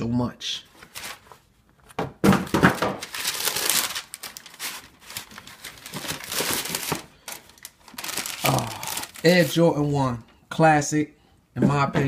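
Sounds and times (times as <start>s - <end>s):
tissue paper rustling: 0.7s - 1.5s, 3.0s - 9.8s.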